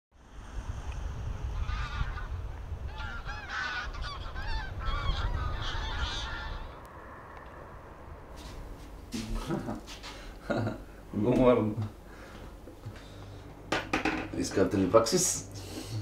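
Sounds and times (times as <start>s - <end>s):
geese honking in flight: 1.5s - 6.9s.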